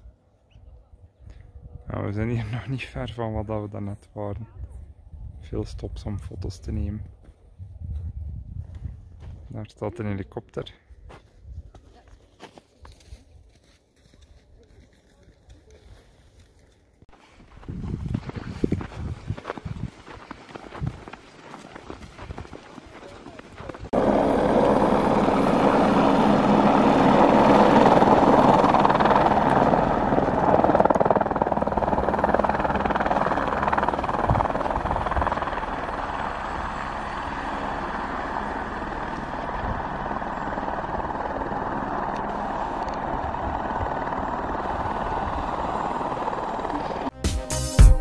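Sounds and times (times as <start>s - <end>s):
helicopter running: 20.7s - 47.2s
music: 47.1s - 48.0s.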